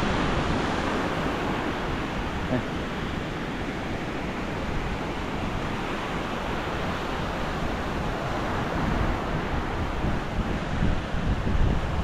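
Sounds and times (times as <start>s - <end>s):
sea waves breaking on a beach: 0.0s - 12.0s
wind buffeting the microphone: 0.0s - 12.0s.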